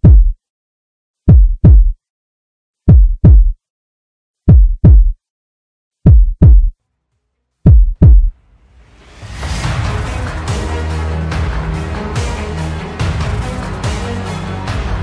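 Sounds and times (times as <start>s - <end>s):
heartbeat thumps: 0.0s - 0.4s, 1.3s - 2.0s, 2.9s - 3.6s, 4.5s - 5.2s, 6.0s - 6.8s, 7.6s - 8.4s
music: 8.3s - 15.0s.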